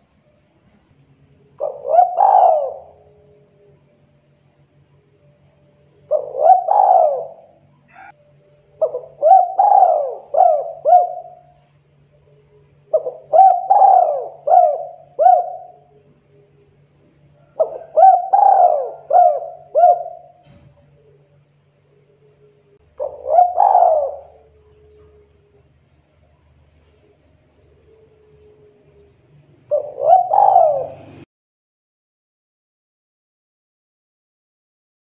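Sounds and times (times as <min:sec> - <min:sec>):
dove cooing: 0:01.6 - 0:03.4, 0:06.0 - 0:08.2, 0:08.8 - 0:11.6, 0:12.8 - 0:16.3, 0:17.3 - 0:21.2, 0:22.4 - 0:25.6, 0:27.7 - 0:31.3.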